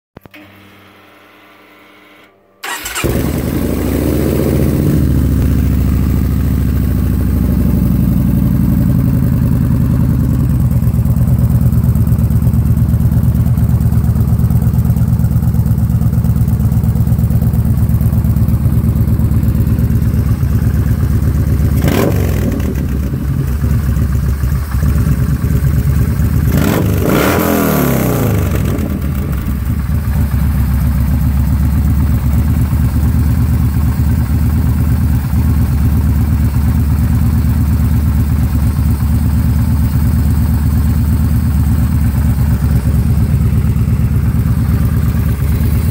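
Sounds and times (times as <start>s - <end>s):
motorcycle engine revving: 2.6s - 15.0s, 15.7s - 30.3s
motorcycle engine idling: 2.6s - 45.9s.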